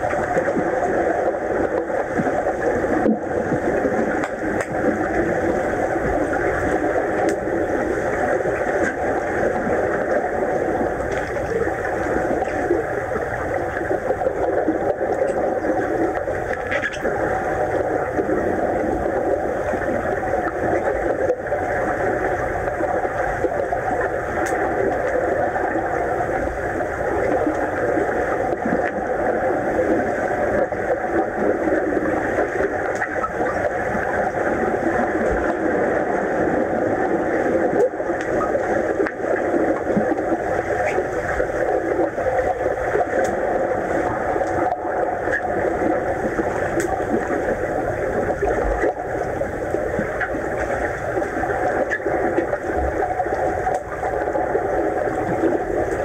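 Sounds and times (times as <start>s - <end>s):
muffled underwater rushing: 0.0s - 56.0s
faint clicks: 1.6s - 5.2s, 6.6s - 7.5s, 24.4s - 25.2s, 42.9s - 43.4s, 44.0s - 45.6s, 46.6s - 47.1s, 48.4s - 54.4s.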